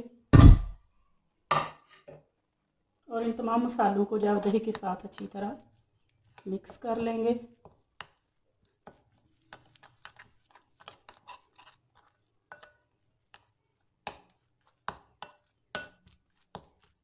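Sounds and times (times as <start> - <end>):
metal spoon clinking in glass bowl: 12.5 - 12.8.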